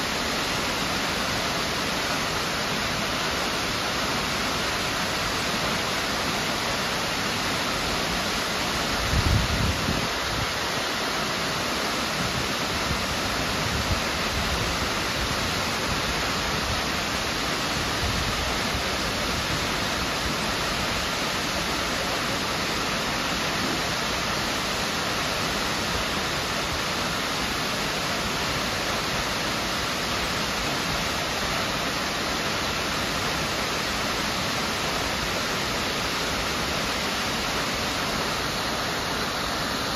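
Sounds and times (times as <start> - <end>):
waterfall rushing: 0.0 - 39.9.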